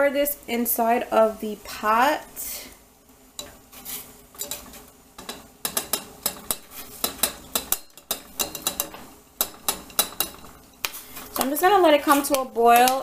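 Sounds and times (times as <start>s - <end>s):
metal spoon clinking on pan: 4.4s - 10.8s.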